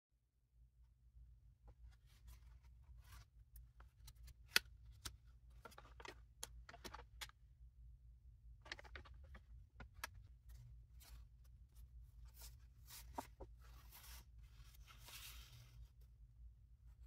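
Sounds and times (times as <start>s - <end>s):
pages turning: 8.7s - 16.0s
paper map crinkling: 8.7s - 16.1s.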